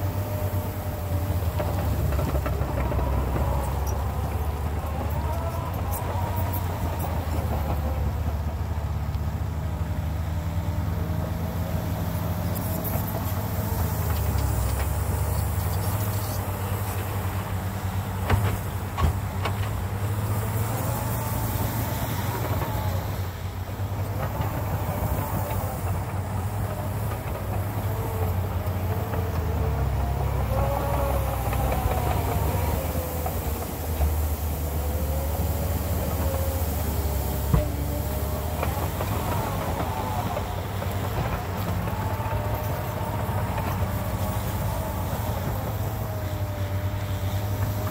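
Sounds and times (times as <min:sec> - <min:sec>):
engine whine: 0:00.0 - 0:47.9
loader diesel engine running: 0:00.0 - 0:47.9.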